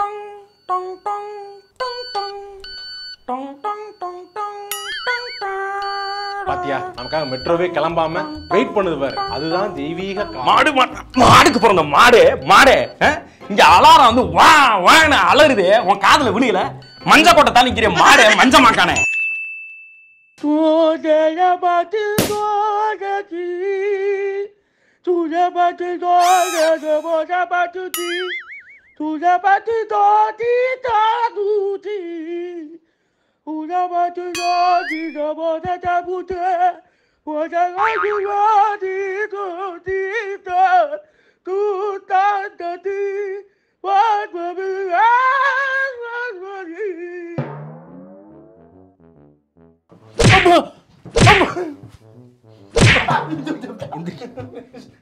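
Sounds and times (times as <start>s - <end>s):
high voice singing: 3.3s - 11.6s, 26.2s - 27.2s, 34.4s - 35.4s, 37.8s - 38.6s
sharp crack: 22.2s - 22.5s, 52.8s - 53.2s
person singing long notes: 26.2s - 27.2s
falling tone: 34.4s - 35.2s, 47.4s - 50.4s.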